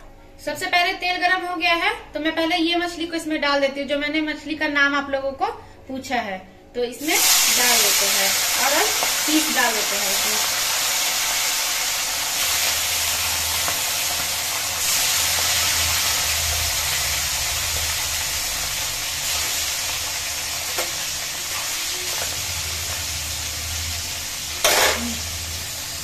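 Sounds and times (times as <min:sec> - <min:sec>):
fish sizzling in hot oil: 0:07.0 - 0:26.0
metal spatula clattering in pan: 0:24.6 - 0:25.2.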